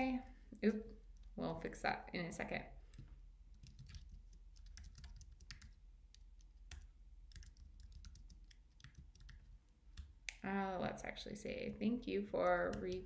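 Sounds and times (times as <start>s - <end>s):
faint keyboard typing: 2.8s - 10.4s, 12.4s - 13.0s.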